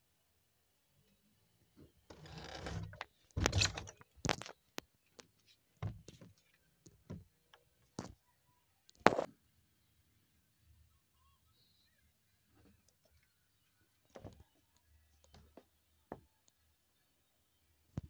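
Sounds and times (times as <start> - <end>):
phone rustling against microphone: 9.0 - 9.3.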